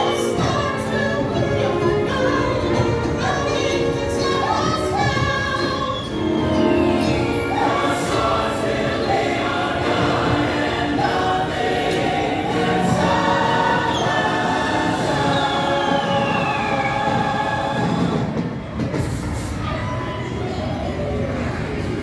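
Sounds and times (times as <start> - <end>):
choir singing over music: 0.0 - 19.5
high gliding whistle tone: 5.6 - 9.6, 13.0 - 17.8.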